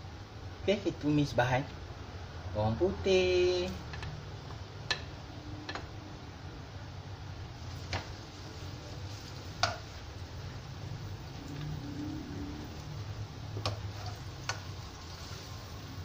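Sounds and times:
garlic sizzling in oil: 0:07.4 - 0:16.0.

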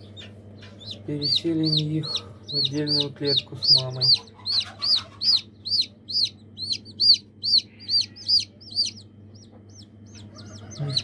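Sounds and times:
chick peeping: 0:00.0 - 0:11.0.

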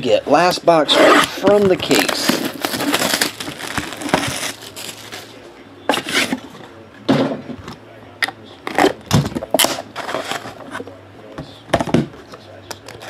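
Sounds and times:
cardboard box scraping and rustling: 0:00.9 - 0:05.2.

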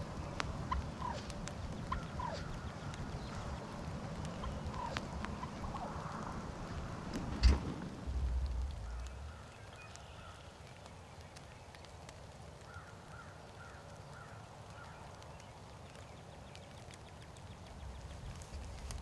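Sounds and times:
low rumble: 0:00.0 - 0:10.3
wild turkey yelping: 0:00.7 - 0:03.6, 0:04.3 - 0:06.8.

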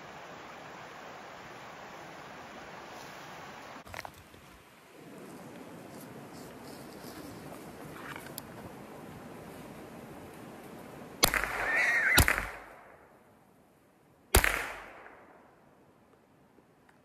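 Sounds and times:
rifle shots: 0:11.2 - 0:13.0, 0:14.3 - 0:15.4
hog squealing: 0:11.6 - 0:12.2.

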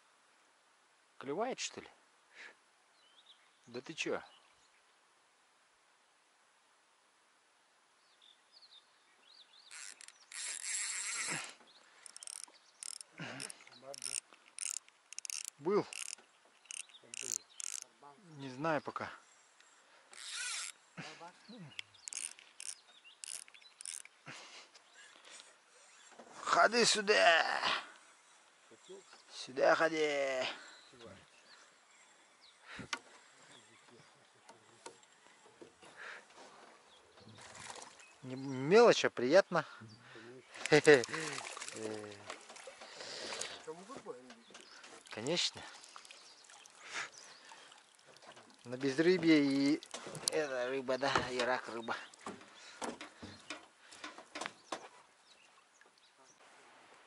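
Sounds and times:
faint bird chirps: 0:08.0 - 0:26.2, 0:30.6 - 0:35.6
fishing reel whirring: 0:09.7 - 0:17.8, 0:20.1 - 0:20.8, 0:22.0 - 0:24.1
faint clicks: 0:09.7 - 0:17.9, 0:21.7 - 0:26.2.

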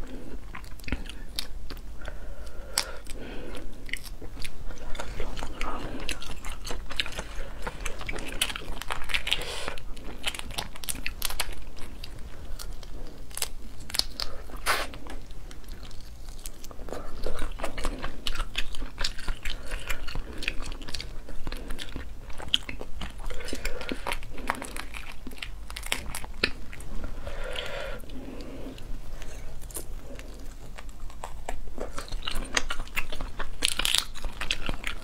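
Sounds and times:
wet chewing: 0:00.0 - 0:35.0
crayfish shells cracking: 0:05.0 - 0:21.2, 0:21.8 - 0:26.9, 0:29.6 - 0:35.0.

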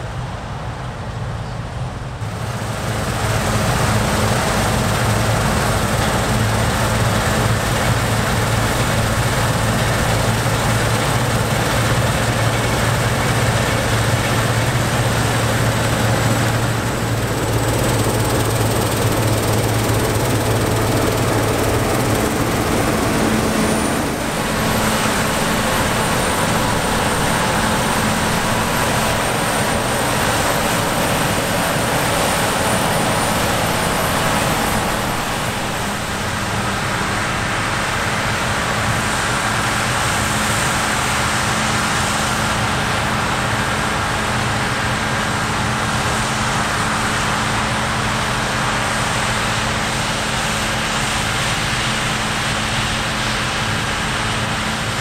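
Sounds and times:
combine harvester engine drone: 0:00.0 - 0:55.0.

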